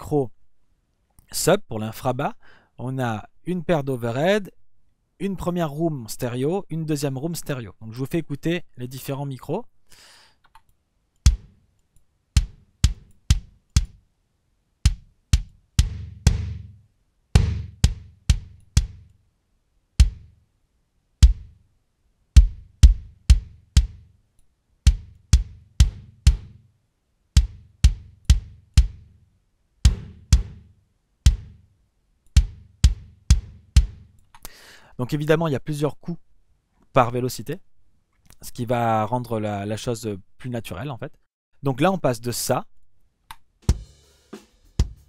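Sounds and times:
kick drum thuds: 11.3s - 11.5s, 12.4s - 14.0s, 14.9s - 16.8s, 17.4s - 19.1s, 20.0s - 20.3s, 21.2s - 21.6s, 22.4s - 24.1s, 24.9s - 26.6s, 27.4s - 29.1s, 29.8s - 30.7s, 31.3s - 31.6s, 32.4s - 34.1s, 44.8s - 45.0s.

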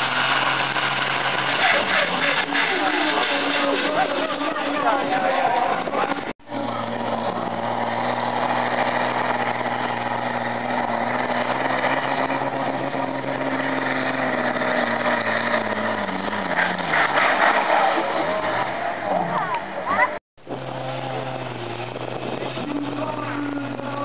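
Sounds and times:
tractor engine running hard: 0.0s - 24.0s.

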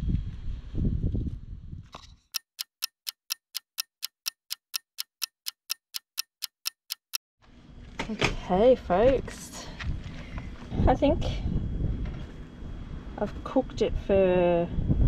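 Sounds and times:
clock ticking: 2.4s - 7.2s.

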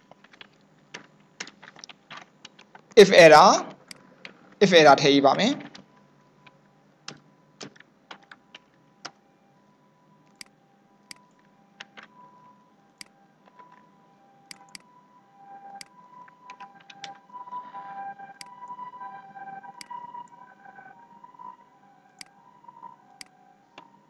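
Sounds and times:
computer keyboard keystrokes: 0.0s - 2.9s, 7.1s - 9.2s, 14.5s - 14.9s, 15.7s - 17.2s
mouse clicks: 14.5s - 14.8s.

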